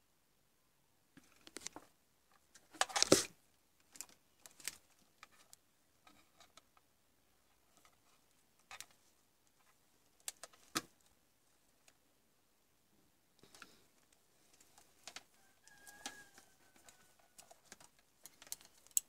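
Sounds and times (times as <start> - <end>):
multimeter probes clicking: 15.0 - 19.0.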